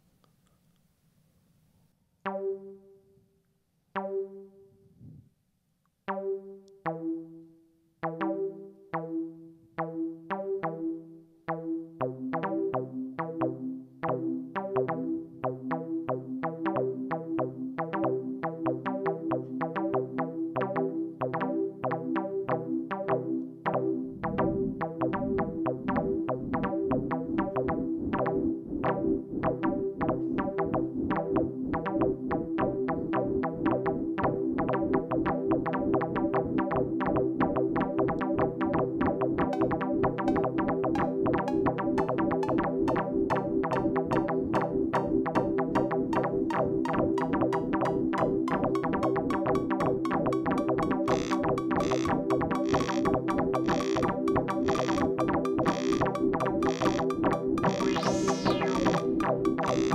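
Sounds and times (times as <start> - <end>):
low beats: 24.1 - 32.7, 39.5 - 59.9
short plucked synth notes: 39.5 - 59.9.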